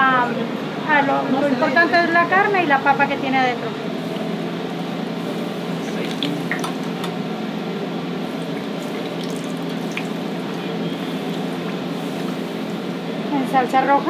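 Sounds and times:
low steady hum: 2.2s - 14.0s
tortillas sizzling in hot oil: 4.0s - 13.9s.

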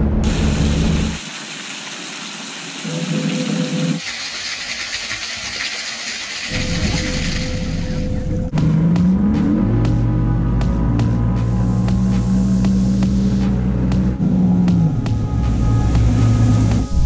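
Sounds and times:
hiss of falling water: 0.3s - 8.1s.

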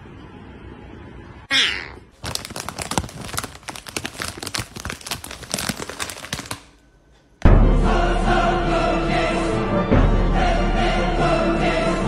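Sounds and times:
chip bag crinkling: 2.2s - 6.8s.

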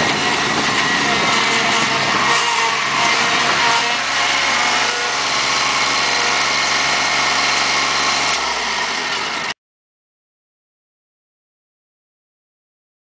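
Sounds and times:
riding mower engine running: 0.0s - 9.6s.

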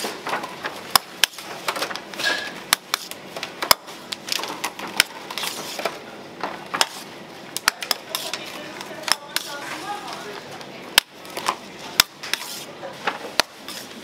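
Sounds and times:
utensils clicking against dishes: 7.6s - 10.4s.

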